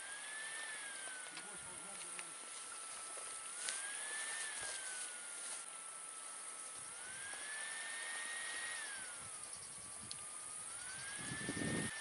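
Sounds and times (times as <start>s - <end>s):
distant motor whining: 0.0s - 12.0s
high-pitched hiss: 0.0s - 12.0s.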